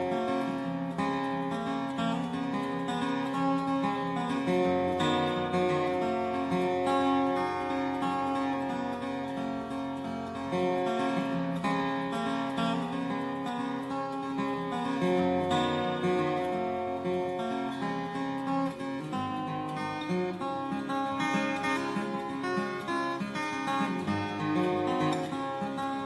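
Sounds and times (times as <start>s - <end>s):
instrumental music: 0.0s - 26.0s.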